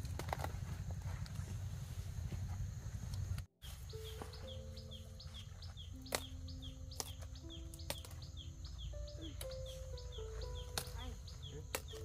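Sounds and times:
bird chirping: 0:03.6 - 0:12.0
stalks snapping as cut: 0:06.0 - 0:08.2, 0:10.7 - 0:11.1, 0:11.7 - 0:12.0.

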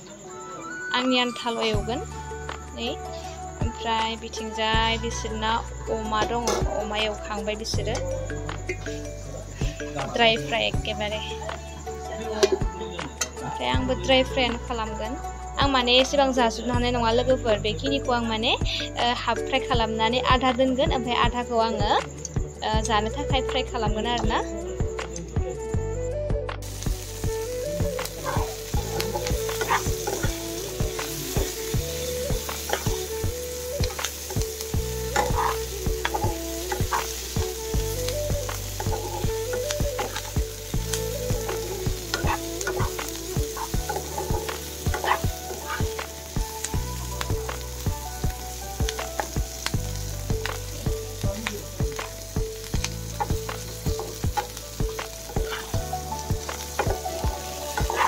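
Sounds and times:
meat and onions sizzling: 0:04.7 - 0:14.4, 0:25.8 - 0:58.0.

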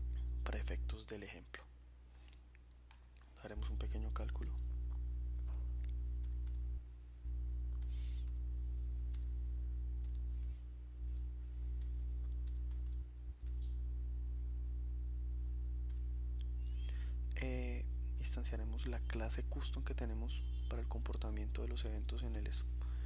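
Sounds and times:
low electrical hum: 0:00.0 - 0:23.0
computer keyboard keystrokes: 0:06.2 - 0:06.6, 0:10.0 - 0:10.3, 0:12.4 - 0:13.7.

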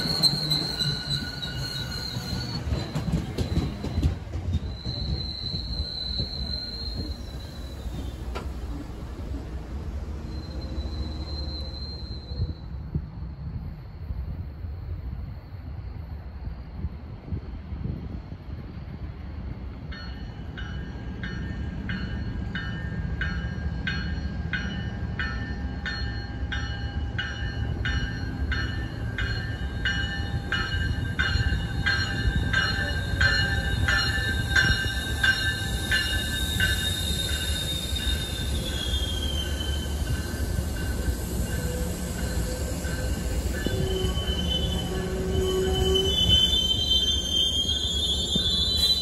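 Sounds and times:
train wheel squeal: 0:00.0 - 0:13.6, 0:19.9 - 0:49.0
train cars rumbling: 0:00.0 - 0:15.2, 0:17.2 - 0:49.0
train bell ringing: 0:19.9 - 0:49.0.

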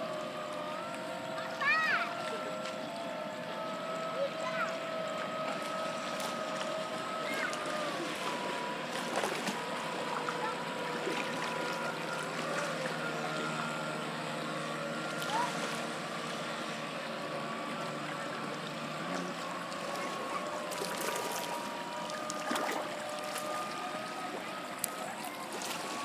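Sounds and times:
boat motor whine: 0:00.0 - 0:26.0
water washing: 0:00.0 - 0:26.0.

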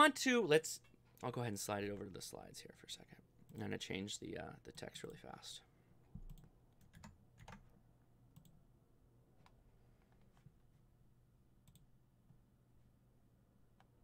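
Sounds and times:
computer keyboard and mouse clicks: 0:06.2 - 0:07.7.

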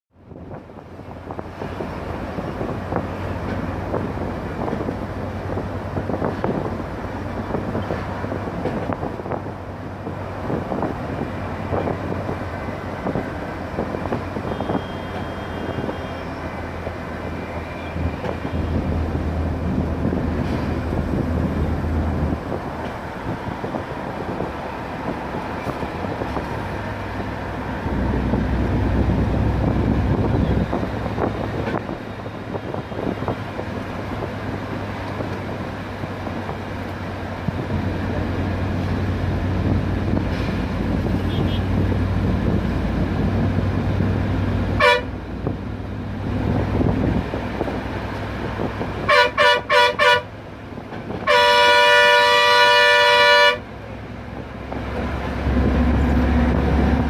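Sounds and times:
bus engine droning: 0:00.1 - 0:57.0
tyre and wind noise: 0:00.2 - 0:53.0.

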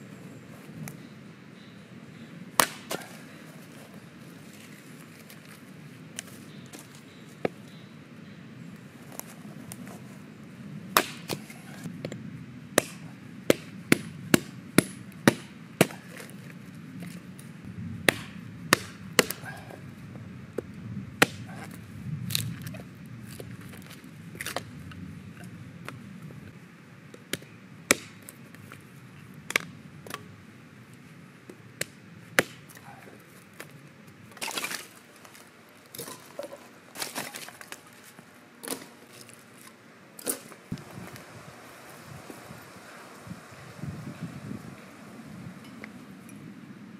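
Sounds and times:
hatchet chopping wood: 0:02.6 - 0:03.1, 0:11.0 - 0:12.2, 0:12.8 - 0:16.3, 0:18.1 - 0:19.6, 0:21.2 - 0:21.7, 0:27.3 - 0:28.3, 0:31.8 - 0:32.9
split sticks clattering: 0:34.3 - 0:40.6.

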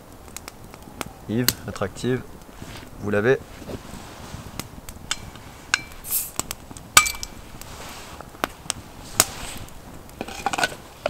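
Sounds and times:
short hiss from bottle: 0:06.0 - 0:06.4.

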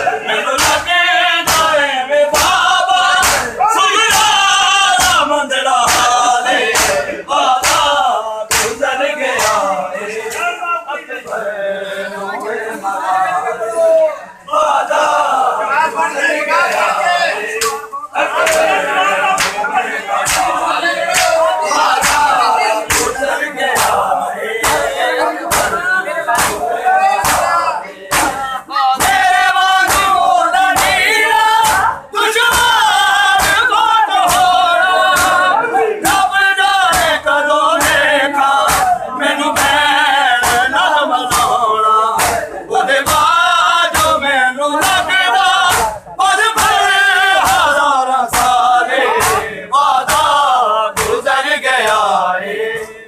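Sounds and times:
men singing a lament: 0:00.0 - 0:53.0
hands slapping bare chests: 0:00.6 - 0:03.5, 0:05.0 - 0:08.8, 0:09.4 - 0:09.6, 0:19.4 - 0:19.6, 0:20.2 - 0:24.9, 0:25.5 - 0:25.8, 0:26.4 - 0:28.4, 0:29.0 - 0:35.4, 0:37.8 - 0:39.0, 0:40.4 - 0:44.2, 0:44.8 - 0:49.4, 0:50.0 - 0:50.4, 0:51.0 - 0:52.1.

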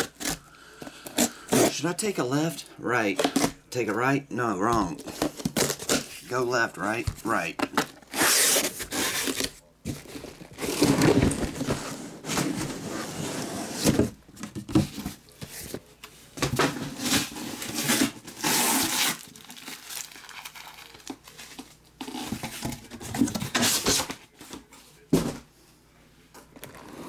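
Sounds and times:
plastic wrap crinkling: 0:18.4 - 0:21.7.

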